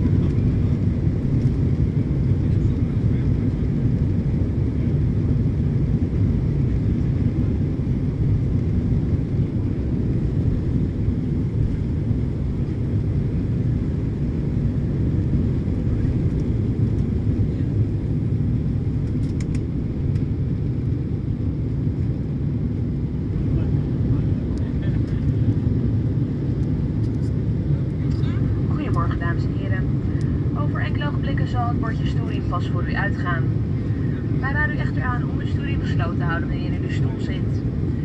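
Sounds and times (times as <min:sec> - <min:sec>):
jet engines rumbling in cabin: 0:00.0 - 0:38.0.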